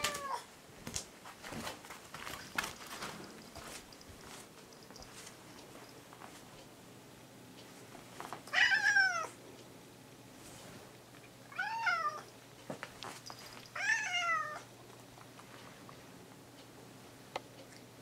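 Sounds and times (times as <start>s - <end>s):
cat meowing: 0.0s - 0.5s, 8.5s - 9.3s, 11.5s - 12.3s, 13.8s - 14.7s.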